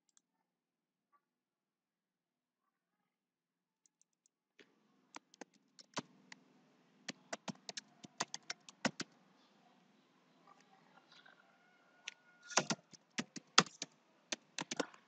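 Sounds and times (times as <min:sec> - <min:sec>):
keyboard typing: 0:07.1 - 0:09.1, 0:12.4 - 0:15.0.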